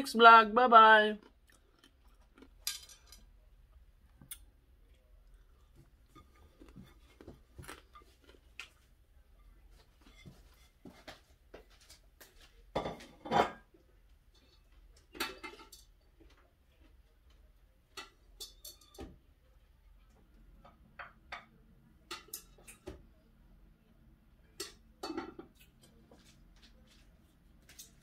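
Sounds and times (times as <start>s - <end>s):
dishes and cutlery clinking: 2.5s - 3.3s, 12.7s - 13.7s, 14.3s - 16.4s, 17.9s - 19.2s, 20.6s - 23.0s, 24.5s - 26.2s
dishes clattering: 2.6s - 3.3s, 12.7s - 13.7s, 14.4s - 16.0s, 17.9s - 19.2s, 21.0s - 23.0s, 24.5s - 25.6s.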